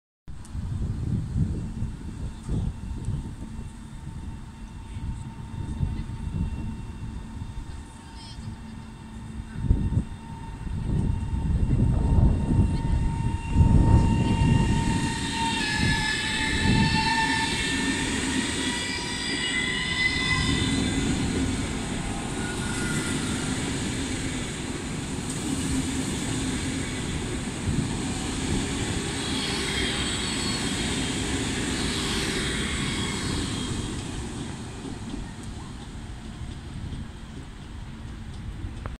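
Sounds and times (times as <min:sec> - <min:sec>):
train wheels rumbling on rail: 0:00.3 - 0:38.9
electric traction whine: 0:00.4 - 0:38.9.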